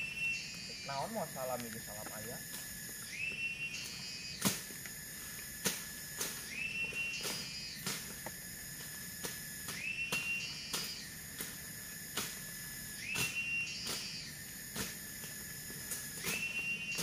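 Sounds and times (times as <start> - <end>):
machete chopping undergrowth: 4.4 - 4.9, 5.5 - 6.5, 7.2 - 12.5, 13.1 - 17.0
high whistling tone: 6.4 - 7.8, 9.7 - 11.0, 13.0 - 14.3, 16.2 - 17.0.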